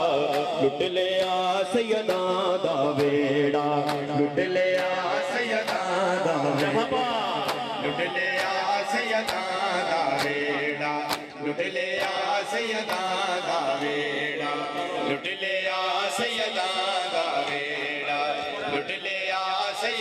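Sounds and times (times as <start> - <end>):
men chanting a lament: 0.0 - 20.0
hand slaps on bare chests: 3.8 - 4.2, 6.6 - 7.8, 11.0 - 11.4.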